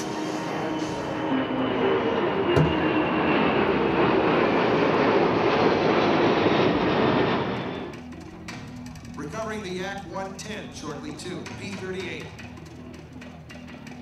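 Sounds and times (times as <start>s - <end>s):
jet engines passing overhead: 0.0s - 14.0s
short knock: 2.6s - 2.8s.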